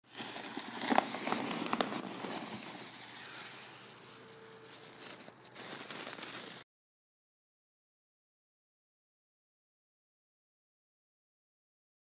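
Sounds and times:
plastic crinkling and rustling: 0:00.0 - 0:06.6.

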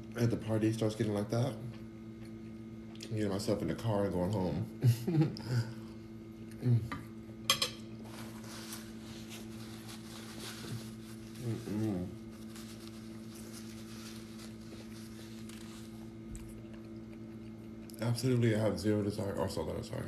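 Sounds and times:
low electrical hum: 0:00.0 - 0:20.0
paper napkin rustling: 0:08.0 - 0:16.6
person humming: 0:11.4 - 0:12.3.

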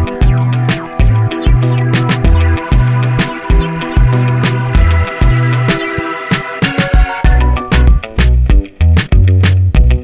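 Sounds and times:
background music with beat and bass: 0:00.0 - 0:10.0.

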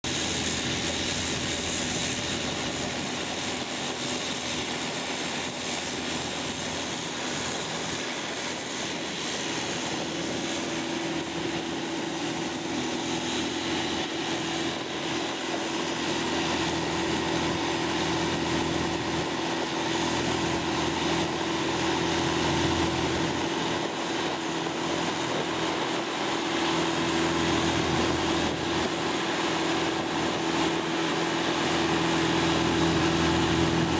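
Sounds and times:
boat engine droning: 0:00.0 - 0:33.9
steady hum: 0:00.1 - 0:33.9.

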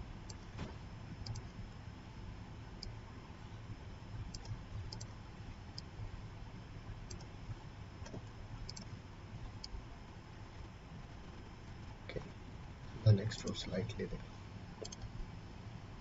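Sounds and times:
steady low hum: 0:00.0 - 0:16.0
computer mouse buttons clicking: 0:01.2 - 0:01.5, 0:07.1 - 0:07.3, 0:08.0 - 0:08.9, 0:14.8 - 0:15.1.

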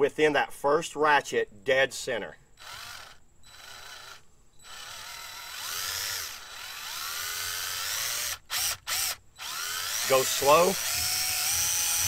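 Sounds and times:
cordless drill whining: 0:02.6 - 0:12.0.

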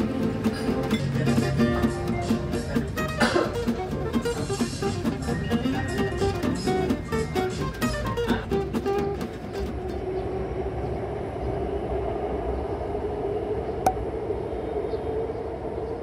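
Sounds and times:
guitar music: 0:00.0 - 0:10.0
mechanical rumble: 0:09.1 - 0:16.0
low hum: 0:09.8 - 0:16.0.

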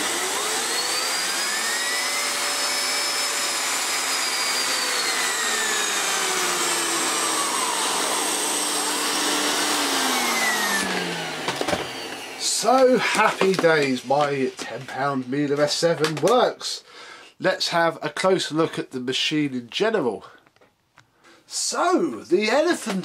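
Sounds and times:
vacuum cleaner air rush: 0:00.0 - 0:14.9
clicks: 0:11.4 - 0:16.5.

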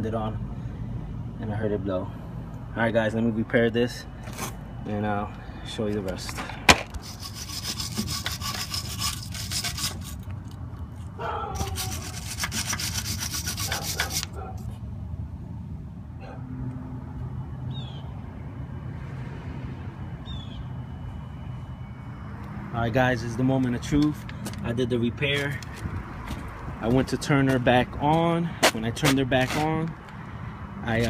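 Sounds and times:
rapid scraping and rubbing: 0:06.8 - 0:10.3, 0:11.6 - 0:14.4.

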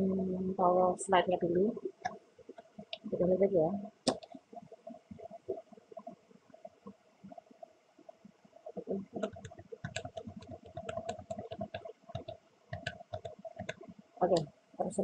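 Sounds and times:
faint computer clicking: 0:03.8 - 0:15.0.

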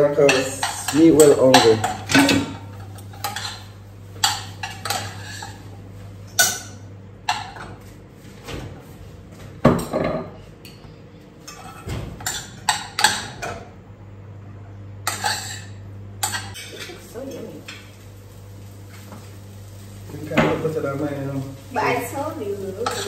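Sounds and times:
utensils clanking on pot and plates: 0:00.0 - 0:05.7, 0:06.3 - 0:07.8, 0:11.4 - 0:13.7, 0:15.0 - 0:18.0, 0:22.6 - 0:23.0
steady low hum: 0:00.0 - 0:23.0.

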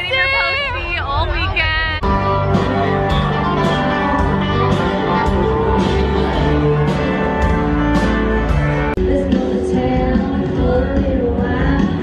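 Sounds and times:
different music: 0:00.0 - 0:12.0
live country band: 0:00.0 - 0:12.0
guitar: 0:02.0 - 0:12.0.

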